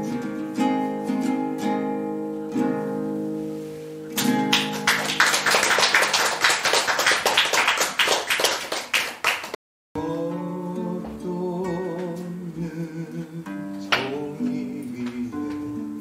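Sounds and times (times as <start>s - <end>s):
acoustic guitar chord: 0.0s - 5.2s
audience applause: 4.3s - 9.6s.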